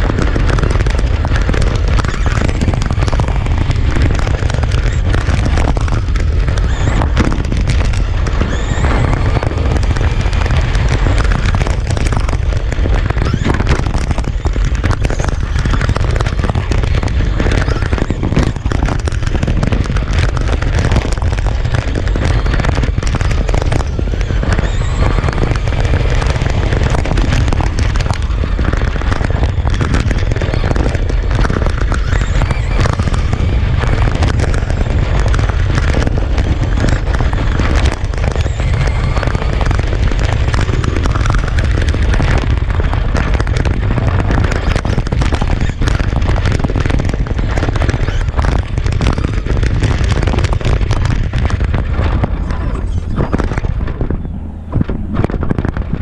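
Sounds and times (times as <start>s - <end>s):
wind and road rumble on microphone: 0.0s - 56.0s.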